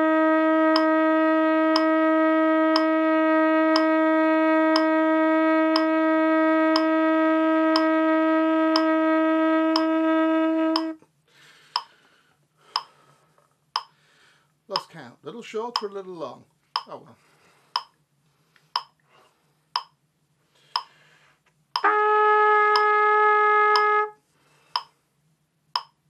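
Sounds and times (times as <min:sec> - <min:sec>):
trumpet holding a long note: 0:00.0 - 0:11.0, 0:21.8 - 0:24.3
metronome clicking: 0:00.7 - 0:00.9, 0:02.7 - 0:02.9, 0:03.7 - 0:03.9, 0:04.7 - 0:04.9, 0:05.7 - 0:05.9, 0:08.7 - 0:08.9, 0:10.8 - 0:11.0, 0:11.8 - 0:12.0, 0:12.7 - 0:13.0, 0:13.8 - 0:14.0, 0:14.7 - 0:15.0, 0:15.7 - 0:16.0, 0:16.8 - 0:17.0, 0:18.8 - 0:19.0, 0:19.8 - 0:20.0, 0:20.7 - 0:21.0, 0:22.7 - 0:22.9, 0:23.7 - 0:24.0, 0:24.7 - 0:25.0, 0:25.8 - 0:26.0.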